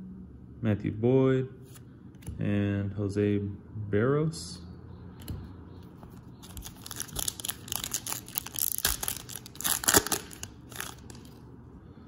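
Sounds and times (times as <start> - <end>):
cards rustling: 6.0 - 11.4
wrapper crinkling: 6.4 - 11.4.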